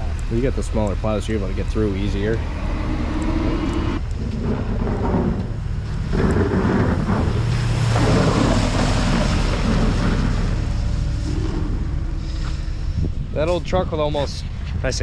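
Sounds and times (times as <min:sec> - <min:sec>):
pickup truck engine running: 0:00.0 - 0:13.4
steel plow blade scraping pavement: 0:00.3 - 0:13.0.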